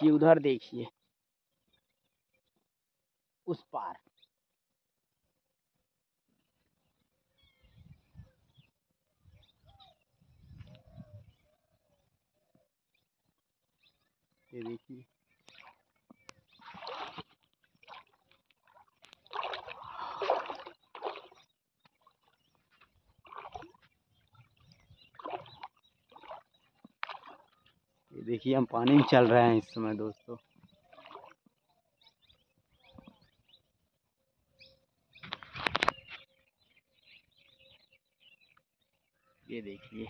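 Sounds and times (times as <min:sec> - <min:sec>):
faint bird chirps: 0:06.4 - 0:17.2, 0:29.4 - 0:40.0
footsteps splashing through water: 0:14.6 - 0:32.4.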